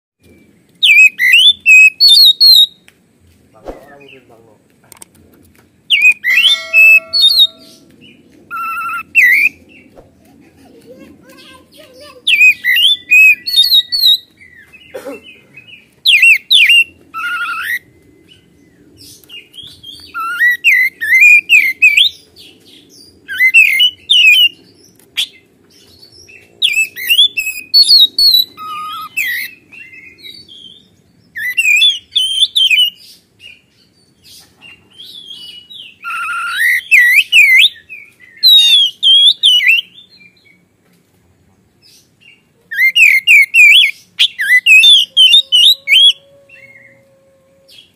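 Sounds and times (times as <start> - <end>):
magpie-robin singing: 0.8 - 2.8, 5.9 - 9.6, 11.2 - 14.8, 15.6 - 18.5, 19.2 - 33.9, 35.0 - 40.4, 42.2 - 46.9.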